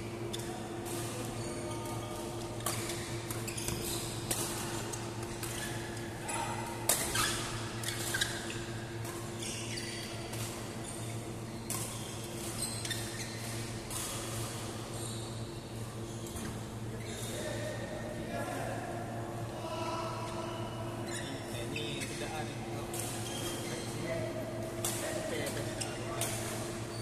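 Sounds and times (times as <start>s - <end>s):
shoes squeaking on floor: 1.4s - 4.3s, 5.0s - 6.4s, 7.0s - 13.8s, 14.9s - 17.5s, 23.2s - 24.2s.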